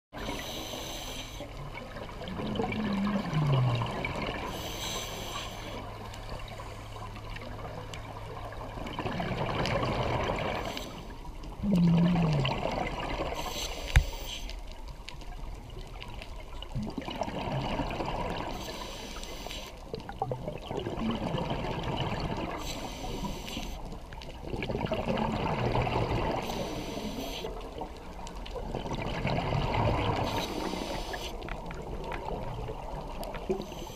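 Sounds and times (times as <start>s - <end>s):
regulator inhale hiss: 0.2s - 1.5s, 4.5s - 5.9s, 13.4s - 14.6s, 18.5s - 19.8s, 22.5s - 23.9s, 26.4s - 27.6s, 30.2s - 31.4s
bubbly exhale gurgle: 0.2s - 6.0s, 7.5s - 14.0s, 15.6s - 33.9s.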